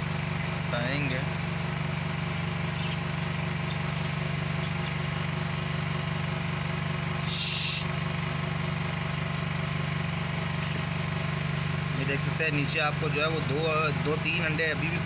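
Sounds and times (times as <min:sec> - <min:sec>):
low mechanical motor hum: 0:00.0 - 0:15.0.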